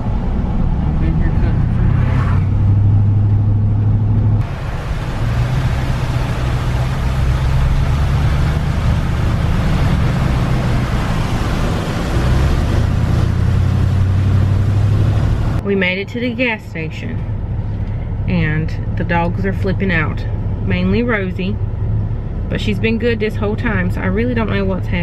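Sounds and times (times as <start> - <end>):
engine and road drone: 0.0 - 25.0
tyres hissing through water: 4.4 - 15.6.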